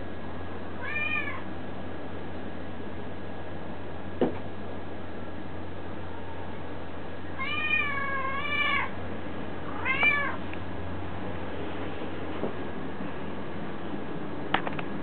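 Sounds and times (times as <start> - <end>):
cat meowing: 0.8 - 1.5, 7.4 - 8.9, 9.7 - 10.4.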